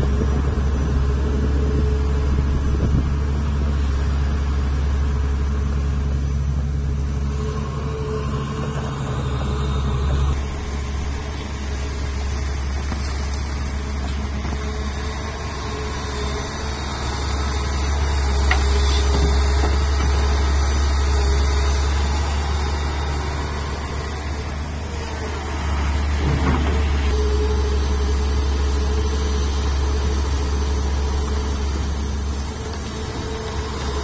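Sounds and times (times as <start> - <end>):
excavator diesel engine humming: 0.0 - 34.0.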